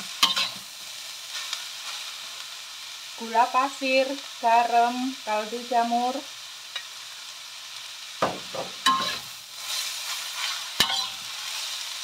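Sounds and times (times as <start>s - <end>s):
metal spatula scraping wok: 0.0s - 1.6s, 8.4s - 11.8s
papaya sizzling in a wok: 0.0s - 12.0s
spatula clanking on wok: 0.2s - 0.6s, 8.2s - 9.3s, 10.8s - 11.2s.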